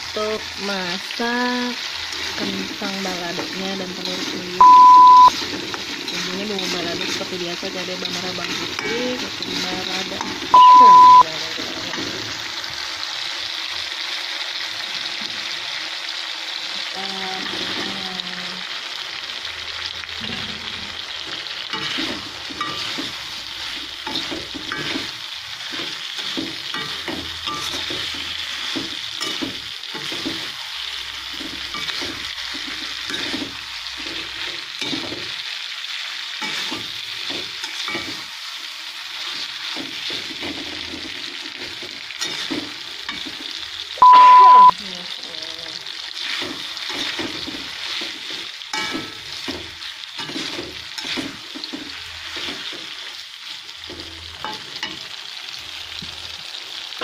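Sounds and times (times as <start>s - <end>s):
food sizzling in a wok: 0.0s - 57.0s
metal spatula scraping a pan: 1.9s - 4.6s, 5.3s - 10.6s, 20.2s - 35.4s, 36.4s - 38.4s, 39.2s - 43.5s, 46.1s - 53.2s.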